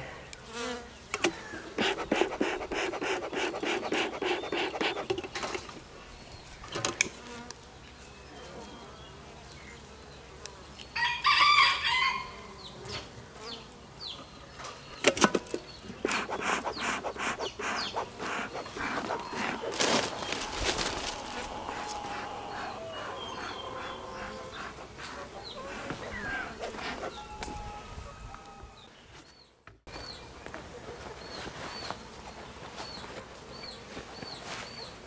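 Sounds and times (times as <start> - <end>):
honey bees buzzing: 0.4 - 6.2, 15.2 - 28.8
rooster crowing: 11.0 - 12.4, 18.9 - 24.6, 25.4 - 28.9.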